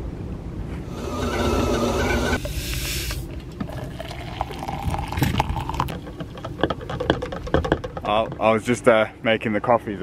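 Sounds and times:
loud rushing hiss: 0:00.9 - 0:03.3
hot water pouring into mug: 0:02.4 - 0:05.9.

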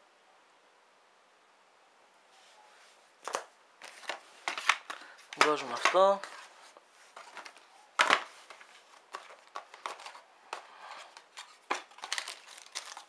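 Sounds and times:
cardboard clicks and rustles: 0:03.2 - 0:13.0.

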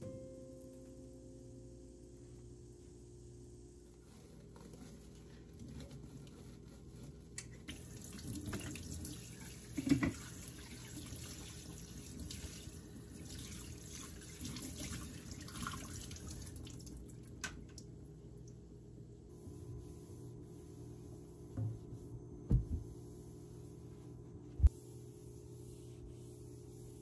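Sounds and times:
knock: 0:22.5 - 0:22.8.

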